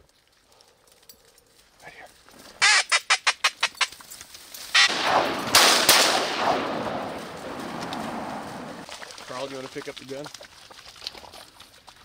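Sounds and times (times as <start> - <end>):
shotgun shots: 4.8 - 8.8.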